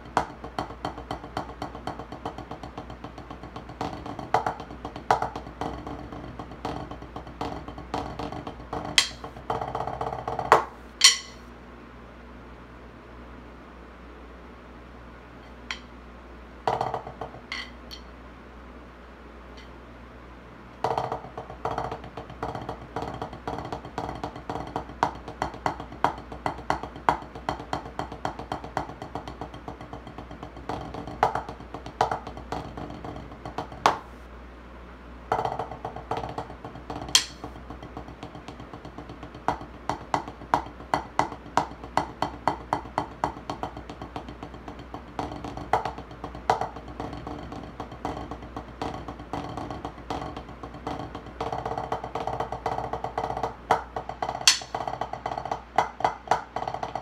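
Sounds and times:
drumsticks on practice pad: 0.0s - 11.5s, 15.4s - 16.0s, 16.7s - 18.2s, 19.5s - 19.8s, 35.3s - 57.0s
sharp drumstick crack: 11.0s - 11.4s, 37.1s - 37.4s, 54.4s - 54.8s.

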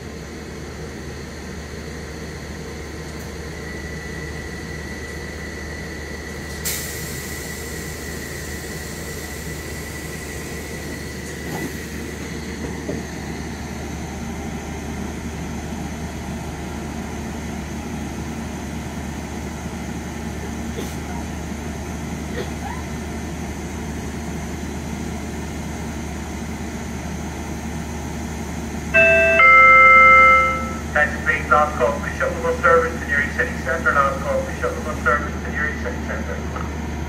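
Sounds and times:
diesel locomotive rumble: 0.0s - 37.0s
train coaches knocking: 11.3s - 13.3s, 29.0s - 36.8s
steady high tone: 29.0s - 32.2s.

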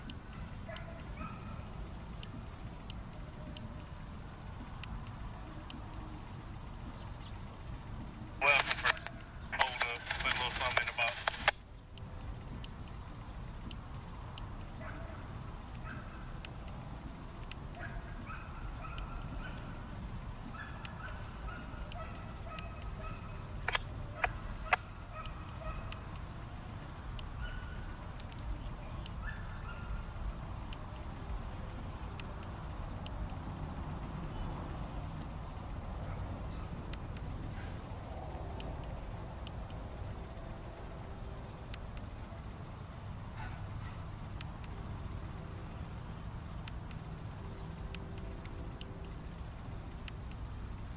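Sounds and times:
high insect drone: 0.0s - 50.9s
sharp clicks: 8.4s - 13.0s, 23.6s - 26.3s.

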